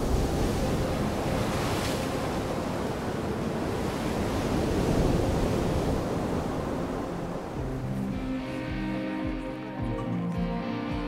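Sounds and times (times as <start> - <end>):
sea waves breaking over rocks: 0.0 - 8.1
wind: 0.0 - 10.7.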